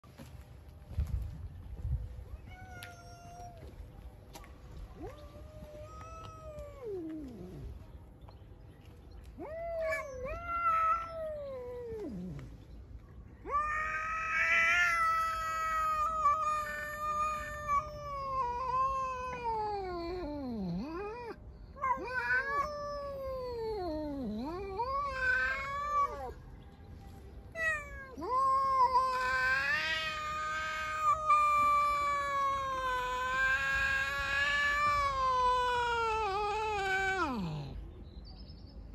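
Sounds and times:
cats yowling: 0:02.4 - 0:03.8, 0:05.0 - 0:07.8, 0:09.3 - 0:12.5, 0:13.4 - 0:26.4, 0:27.5 - 0:37.8.

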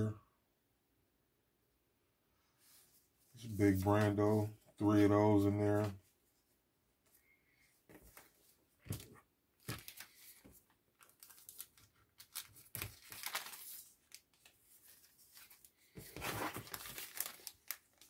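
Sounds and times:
plastic and paper crinkling: 0:07.9 - 0:18.0.

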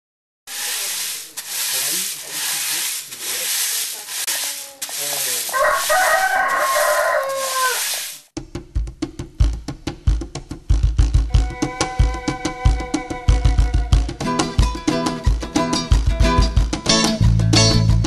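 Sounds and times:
rooster crowing: 0:05.5 - 0:08.2.

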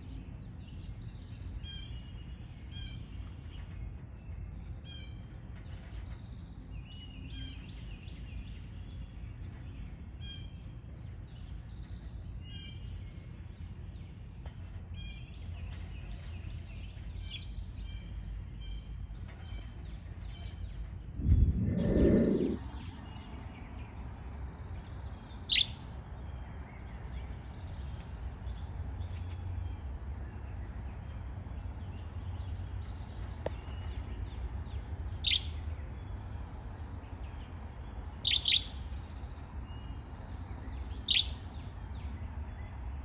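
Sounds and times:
steady low rumble: 0:13.0 - 0:25.0
faint high twittering: 0:21.2 - 0:23.3
budgerigars chirping: 0:38.2 - 0:39.0, 0:41.0 - 0:41.4.

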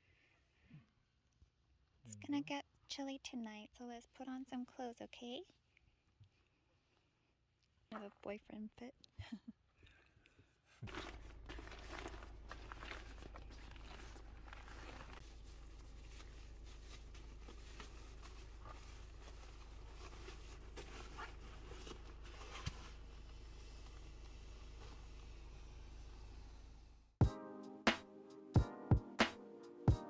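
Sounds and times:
mattress fabric crinkling: 0:10.8 - 0:23.2.

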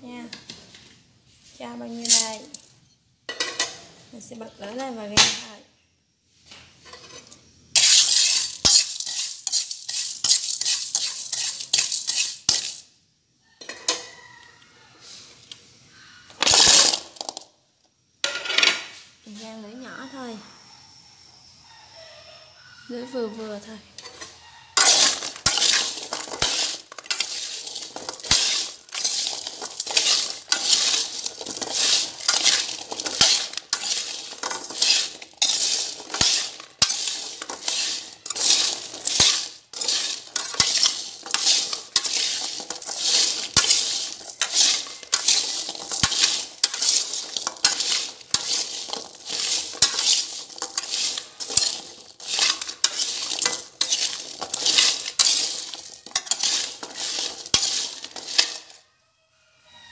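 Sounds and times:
spatula scraping wok: 0:00.5 - 0:02.7, 0:06.8 - 0:12.9, 0:13.6 - 0:14.4, 0:16.3 - 0:17.4, 0:23.3 - 0:58.8
chestnuts and salt rattling: 0:01.5 - 0:02.8, 0:07.8 - 0:12.9, 0:16.3 - 0:17.5, 0:24.0 - 0:58.8.

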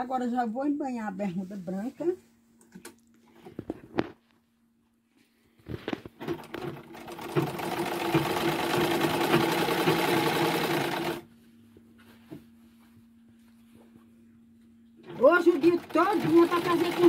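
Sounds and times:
sewing machine stitching: 0:06.2 - 0:11.2, 0:15.0 - 0:17.0.

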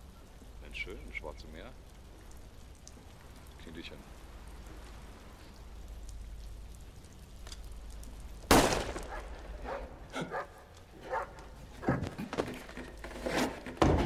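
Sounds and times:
handgun shot: 0:08.5 - 0:09.2.

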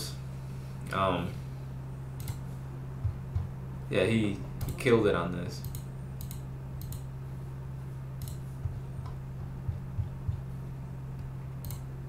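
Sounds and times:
steady low hum: 0:00.0 - 0:12.0
computer mouse clicks: 0:02.2 - 0:02.4, 0:05.6 - 0:07.1, 0:08.2 - 0:08.4, 0:11.6 - 0:11.9
soft low bumps: 0:02.9 - 0:03.8, 0:08.4 - 0:11.5.

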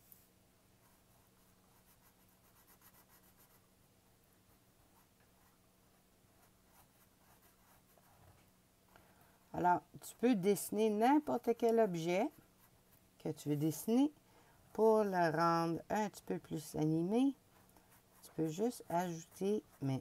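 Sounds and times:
faint steady hum: 0:00.0 - 0:20.0
marker scratching on paper: 0:00.8 - 0:03.6, 0:06.4 - 0:08.2, 0:17.0 - 0:20.0.

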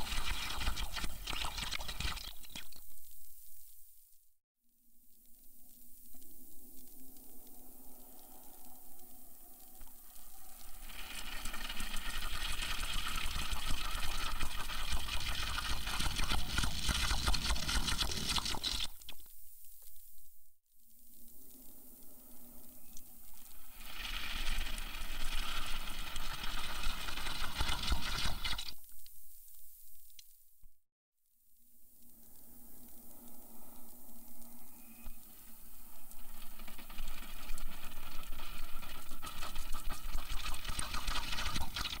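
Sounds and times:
coffee slurped from a cup: 0:00.0 - 0:02.8, 0:10.9 - 0:19.0, 0:23.8 - 0:28.8, 0:36.6 - 0:42.0
faint clicks: 0:05.0 - 0:10.8, 0:18.1 - 0:23.7.

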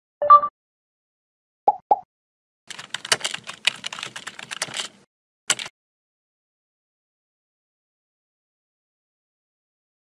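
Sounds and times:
computer keyboard typing: 0:02.7 - 0:05.7.

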